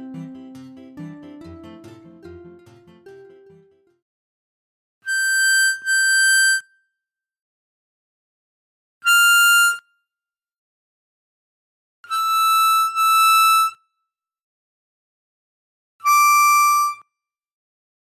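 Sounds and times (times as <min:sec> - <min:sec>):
harmonica single notes: 0:00.0 - 0:03.8.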